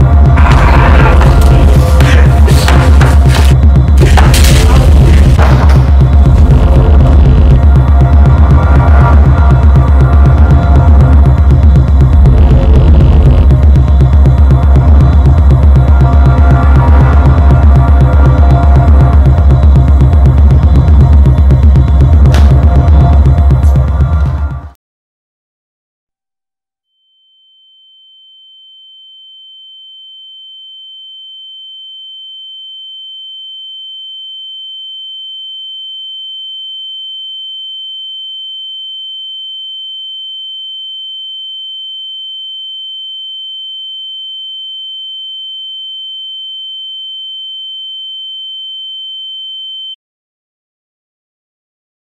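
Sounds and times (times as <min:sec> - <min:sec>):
high-pitched electronic sine tone: 0:26.9 - 0:50.0.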